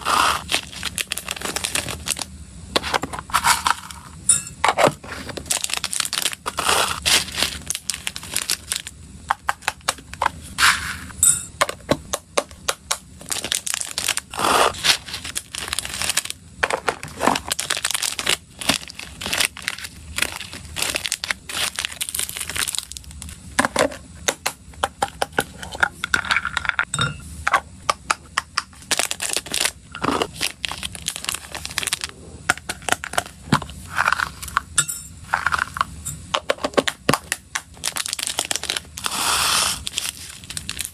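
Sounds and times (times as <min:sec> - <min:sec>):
plastic packets crinkling and tearing: 0:00.1 - 0:02.3, 0:05.4 - 0:08.9, 0:13.2 - 0:23.4, 0:28.8 - 0:34.5, 0:36.6 - 0:40.9
pellets pouring into plastic box: 0:37.8 - 0:40.9.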